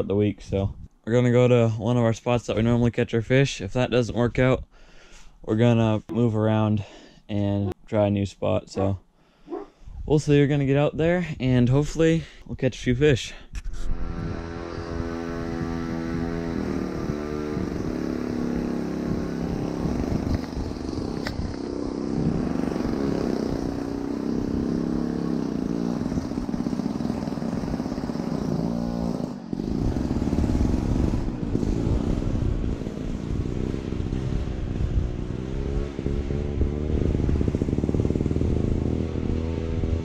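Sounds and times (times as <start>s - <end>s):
motor engine running: 14.0s - 40.0s.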